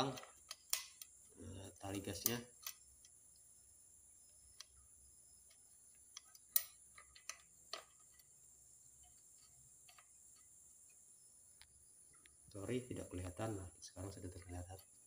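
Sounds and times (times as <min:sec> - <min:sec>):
small metal and plastic clicks: 0:00.0 - 0:01.2, 0:01.9 - 0:03.4, 0:04.5 - 0:04.8, 0:05.4 - 0:08.3, 0:09.0 - 0:10.5.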